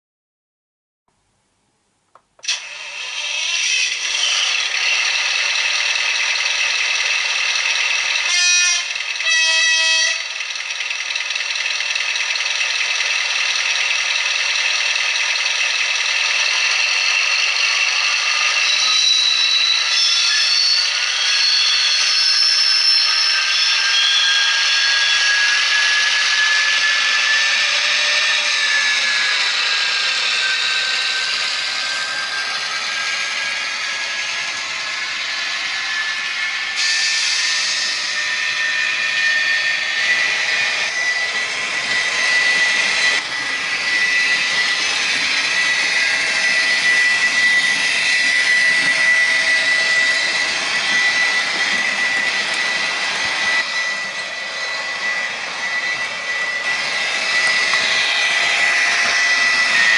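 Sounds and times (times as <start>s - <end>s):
model diesel locomotive engine running: 2.1s - 59.9s
train horn blasts: 8.3s - 10.4s.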